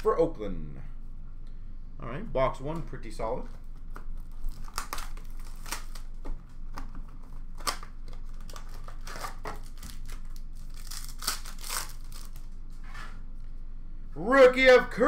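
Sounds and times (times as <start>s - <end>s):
packaging crinkling and rustling: 3.4s - 12.6s.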